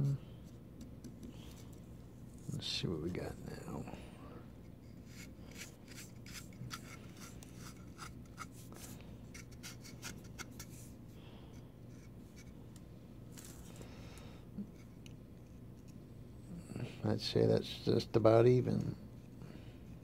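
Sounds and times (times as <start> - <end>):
low steady hum: 0.0 - 20.0
fingers scratching plastic model: 5.0 - 10.8.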